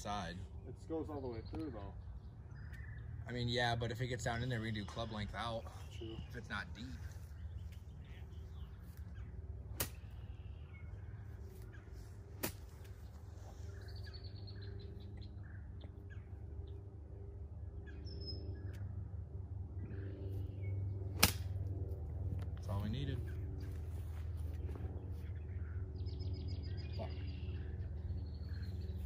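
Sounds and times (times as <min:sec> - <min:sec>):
birds chirping: 0:00.0 - 0:29.0
steady low rumble: 0:00.0 - 0:29.0
golf club striking ball: 0:09.7 - 0:10.2, 0:21.1 - 0:21.6.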